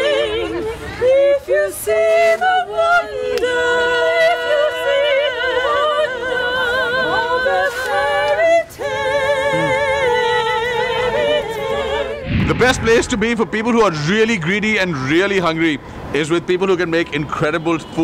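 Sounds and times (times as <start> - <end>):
woman singing unaccompanied: 0.0 - 12.3.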